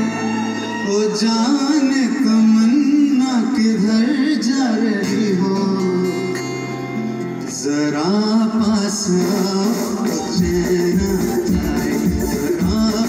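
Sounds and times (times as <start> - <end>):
keyboard: 0.0 - 13.0
man singing into a microphone: 0.0 - 13.0
hand drum: 9.2 - 13.0.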